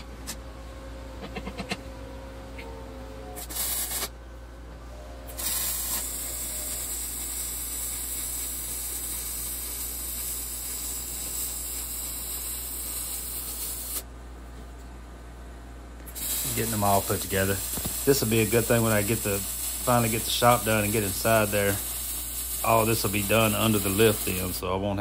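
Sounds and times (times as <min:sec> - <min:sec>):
constant low hum: 0:00.0 - 0:25.0
welding arc hissing: 0:03.4 - 0:04.1, 0:05.3 - 0:14.1, 0:16.1 - 0:24.6.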